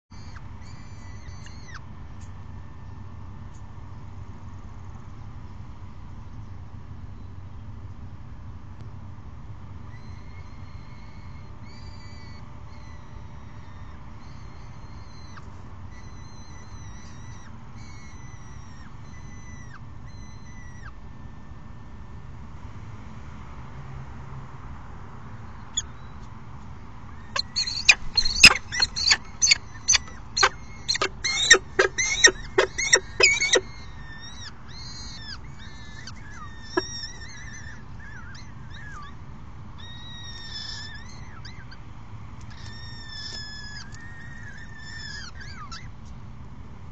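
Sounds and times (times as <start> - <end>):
falcons calling: 27.3 - 38.9.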